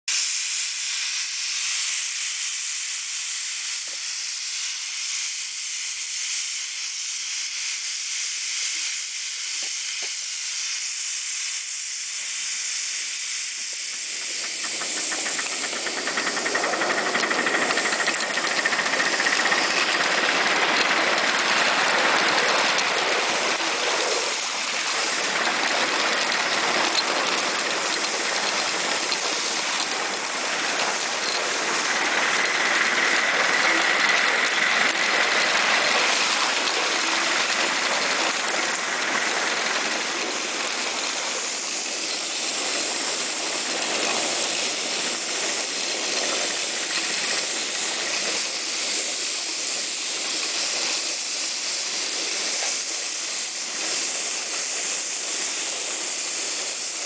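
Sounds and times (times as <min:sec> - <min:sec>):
steam locomotive hissing: 0:00.1 - 0:57.0.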